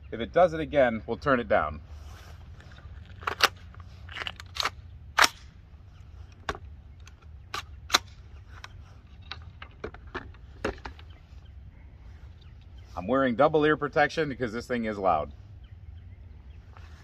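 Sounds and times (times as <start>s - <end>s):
rifle metallic clicks: 3.2s - 5.6s.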